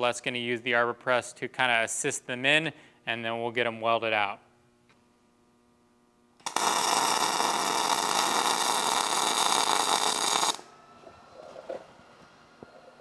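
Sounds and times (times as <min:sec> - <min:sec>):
welding arc crackling: 0:06.4 - 0:10.7.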